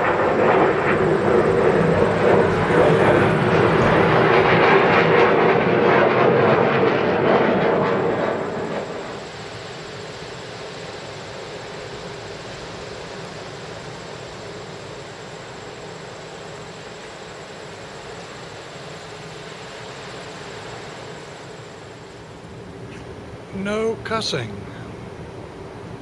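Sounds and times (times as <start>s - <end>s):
outdoor background hiss: 8.4s - 26.0s
faint high whine: 9.0s - 26.0s.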